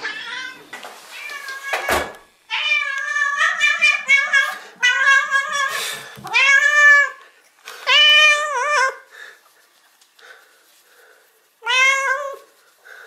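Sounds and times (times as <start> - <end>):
cat meowing loudly: 11.6 - 12.4.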